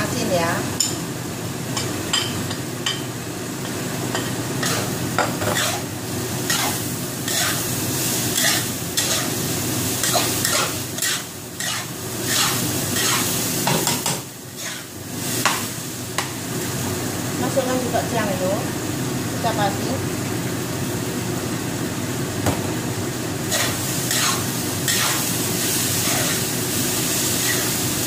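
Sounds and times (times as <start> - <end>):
rice sizzling in hot oil: 0.0 - 28.0
spatula scraping wok: 4.2 - 15.7, 23.5 - 28.0.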